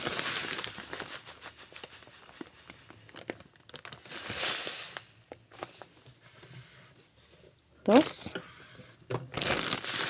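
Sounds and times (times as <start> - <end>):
plastic bag crinkling: 0.0 - 6.0, 9.2 - 10.0.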